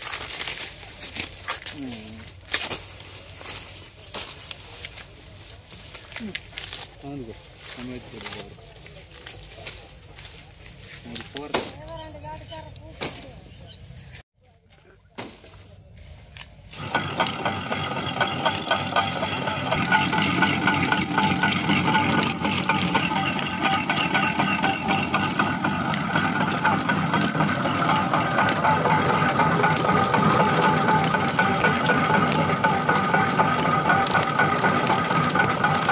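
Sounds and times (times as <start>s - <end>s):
sugarcane crusher clattering: 0.0s - 5.1s, 5.8s - 10.2s, 16.7s - 35.9s
regular high ticking: 16.8s - 35.9s.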